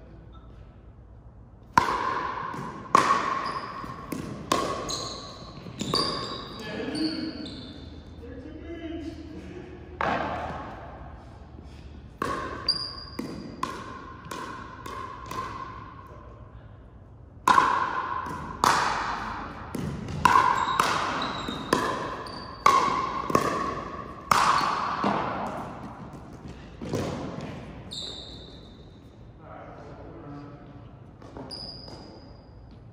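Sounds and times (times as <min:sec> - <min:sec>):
ball strikes and bounces echoing: 0:01.6 - 0:08.0, 0:09.8 - 0:11.4, 0:12.0 - 0:16.2, 0:17.3 - 0:28.8
shoes squeaking on gym floor: 0:03.3 - 0:08.2, 0:20.4 - 0:22.7, 0:27.8 - 0:29.2, 0:31.1 - 0:32.9.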